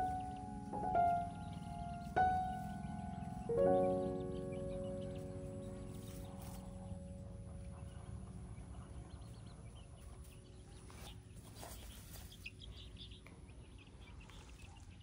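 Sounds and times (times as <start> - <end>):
background music: 0.0 - 8.2
bird chirps: 0.0 - 15.0.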